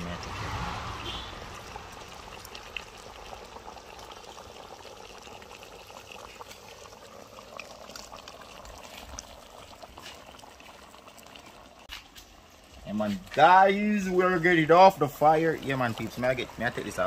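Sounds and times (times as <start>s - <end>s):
gravy boiling: 0.0s - 17.0s.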